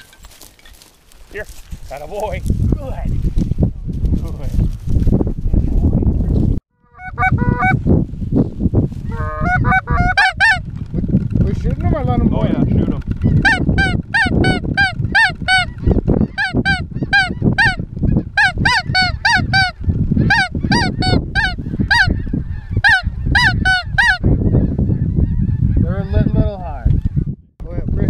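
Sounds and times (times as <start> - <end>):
goose honking: 6.9 - 7.8, 9.1 - 10.6.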